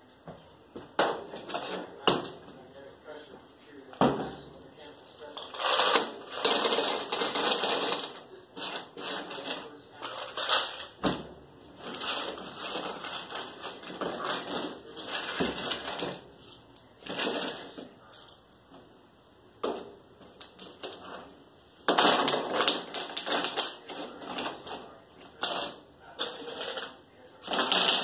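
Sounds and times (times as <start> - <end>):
pebbles clattering in a flower pot: 21.8 - 28.0.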